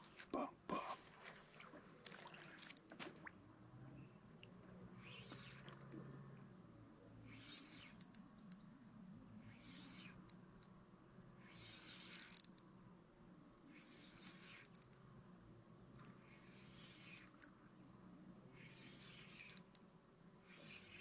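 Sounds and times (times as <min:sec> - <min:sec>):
fishing reel clicking: 0:05.4 - 0:06.0, 0:07.5 - 0:08.6, 0:12.0 - 0:12.6, 0:14.5 - 0:15.0, 0:17.1 - 0:17.5, 0:19.3 - 0:19.8.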